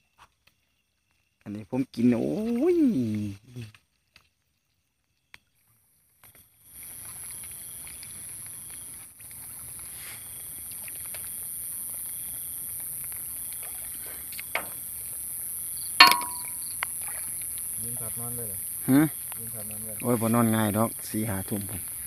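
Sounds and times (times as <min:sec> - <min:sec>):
wading and sloshing in water: 0:02.2 - 0:22.0
water splashes: 0:06.7 - 0:22.0
high-pitched hiss: 0:17.6 - 0:22.0.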